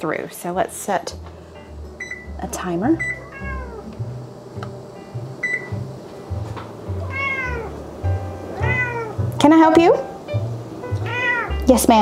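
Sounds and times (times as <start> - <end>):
electronic beeps of stove panel: 2.0 - 2.4, 3.0 - 3.2, 5.4 - 5.9
cat meowing: 3.1 - 3.9, 7.0 - 7.7, 8.6 - 9.2, 10.9 - 11.6.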